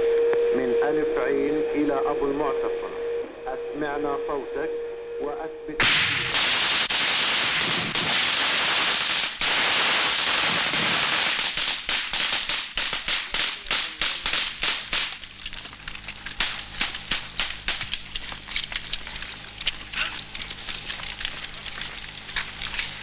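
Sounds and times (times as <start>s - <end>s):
rifle gunfire: 5.8s - 15.2s, 16.4s - 18.0s.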